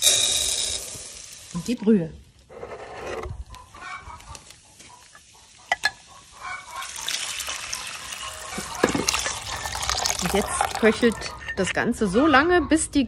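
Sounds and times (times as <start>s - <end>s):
broth splashing into pan: 6.7s - 11.2s.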